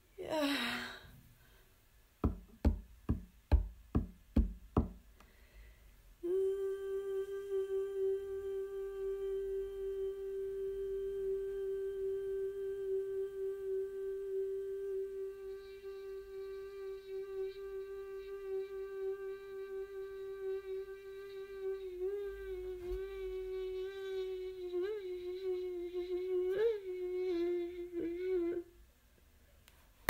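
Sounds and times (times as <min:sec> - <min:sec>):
evenly spaced knocks: 0:02.2 - 0:05.0
long hummed note: 0:06.2 - 0:28.7.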